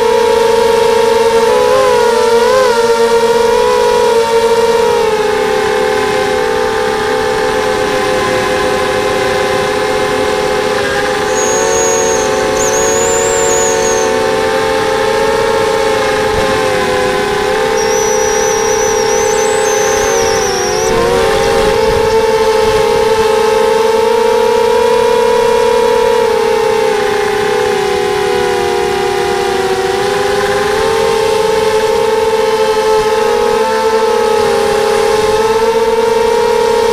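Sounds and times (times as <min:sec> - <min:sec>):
quadcopter motors whining: 0:00.0 - 0:36.9
faint high whistle: 0:11.0 - 0:14.3, 0:17.7 - 0:22.2.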